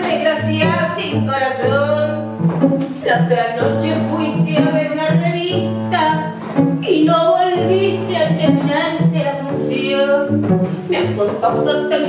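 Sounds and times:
cello low sustained notes: 0:00.2 - 0:12.0
woman singing: 0:10.9 - 0:12.0.

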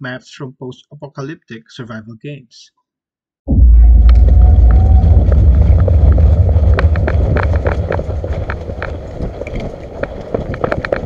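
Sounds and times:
wind rumble on microphone: 0:03.5 - 0:11.0
footsteps running on dirt: 0:04.2 - 0:11.0.

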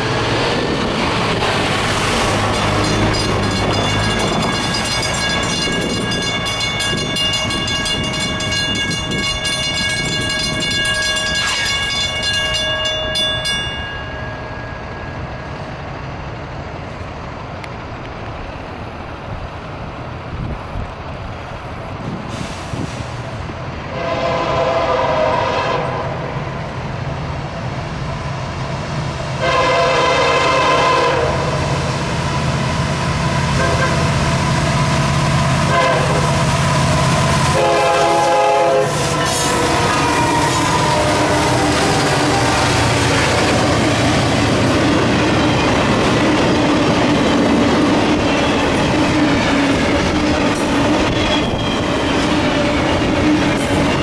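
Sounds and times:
locomotive air horn blasts: 0:23.9 - 0:26.2, 0:29.4 - 0:31.6, 0:33.5 - 0:34.1, 0:35.7 - 0:36.4, 0:37.4 - 0:41.6.

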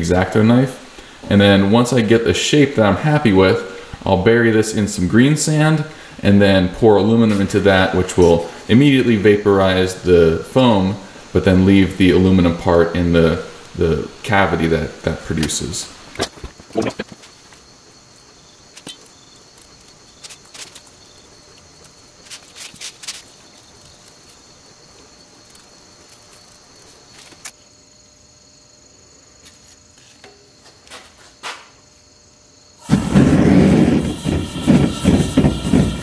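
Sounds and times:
furnace roaring: 0:00.0 - 0:27.5, 0:32.7 - 0:36.0
steady high hiss: 0:00.0 - 0:36.0
gritty sand clicks and scrapes: 0:18.7 - 0:24.6.

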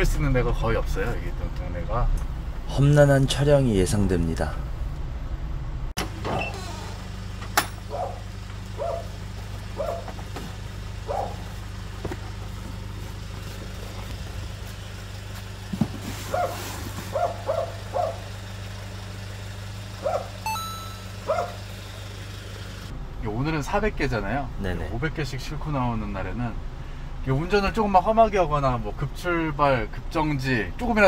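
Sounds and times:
truck engine idling: 0:06.0 - 0:23.2
short high squeaks: 0:06.3 - 0:07.1.

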